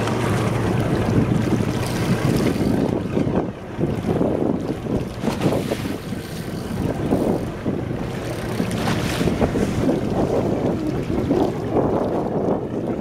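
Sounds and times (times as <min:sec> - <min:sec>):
water washing along boat hull: 0:00.0 - 0:13.0
wind buffeting microphone: 0:00.0 - 0:13.0.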